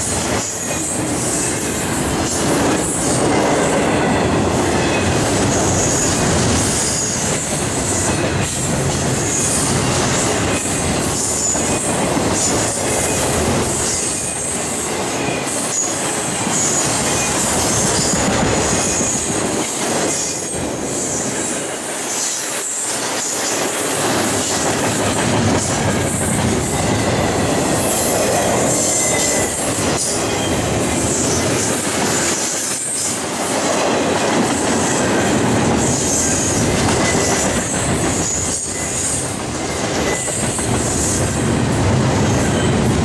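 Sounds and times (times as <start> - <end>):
train wheels rumbling on rails: 0.0 - 43.0
high wheel squeal: 26.6 - 31.4, 35.9 - 41.2.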